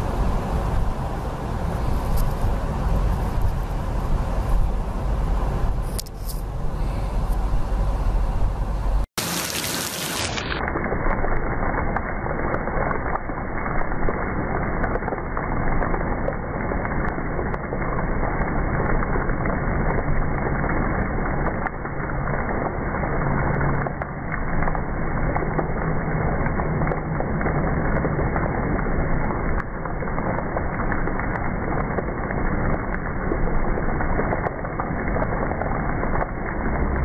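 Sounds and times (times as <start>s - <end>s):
heavy rain splashing: 0.0s - 37.0s
drops or hail ticking: 11.9s - 37.0s.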